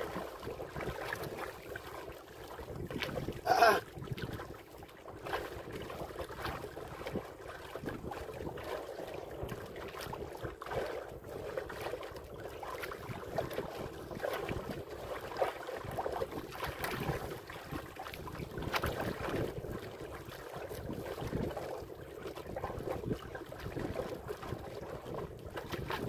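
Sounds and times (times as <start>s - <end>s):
water splashing against boat: 0.0s - 26.0s
wind buffeting microphone: 2.5s - 11.9s, 13.0s - 15.0s, 22.4s - 26.0s.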